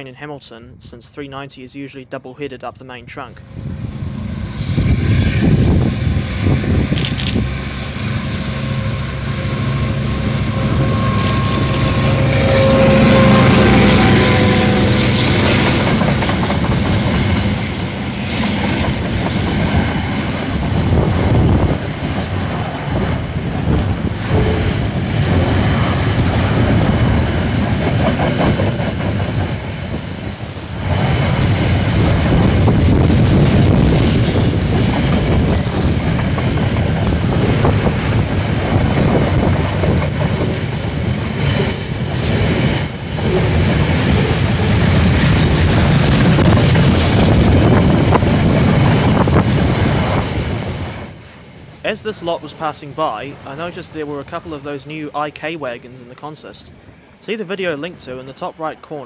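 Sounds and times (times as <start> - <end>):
diesel locomotive engine passing: 3.2 - 59.0
freight wagons rumbling and clicking: 15.2 - 17.6.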